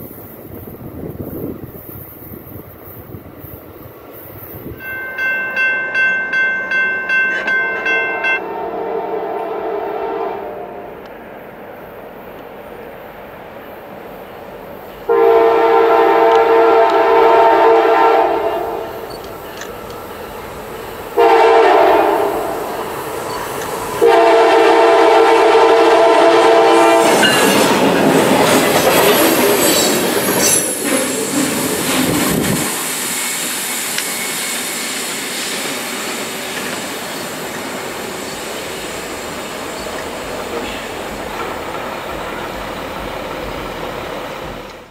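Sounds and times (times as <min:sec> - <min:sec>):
locomotive air horn: 0:08.4 - 0:11.0, 0:15.1 - 0:19.0, 0:21.2 - 0:22.8, 0:24.0 - 0:27.8
train wheels clicking over rails: 0:15.9 - 0:44.9.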